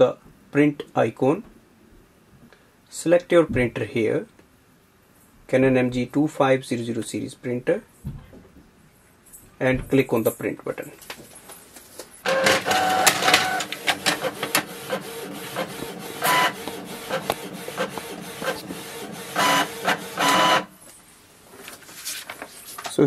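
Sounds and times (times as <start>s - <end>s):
inkjet printer printing: 12.2s - 20.8s.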